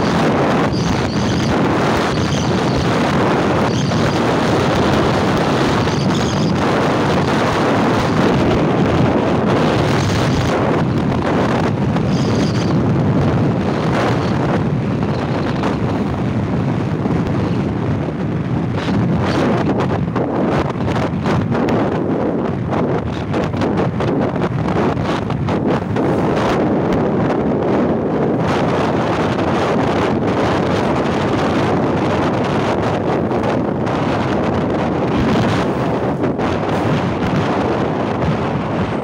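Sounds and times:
motorcycle engine: 0:00.0 - 0:20.1
road noise: 0:00.0 - 0:39.0
wind rushing over microphone: 0:00.0 - 0:39.0.

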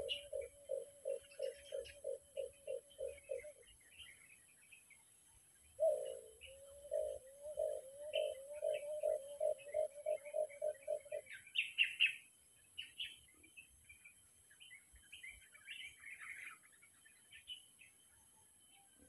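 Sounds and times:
dove cooing: 0:00.0 - 0:03.6, 0:05.8 - 0:11.7
small birds chirping: 0:00.0 - 0:19.0.

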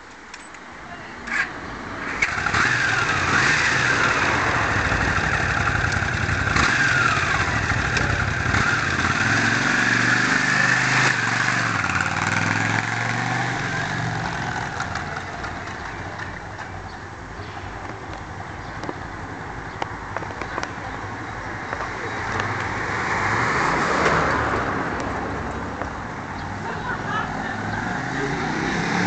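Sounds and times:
motorcycle engine starting and revving: 0:01.3 - 0:17.0, 0:27.2 - 0:29.0.

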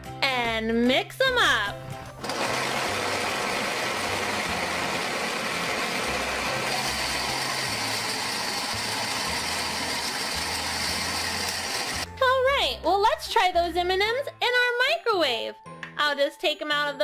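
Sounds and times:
toy blender motor running: 0:02.2 - 0:12.1.

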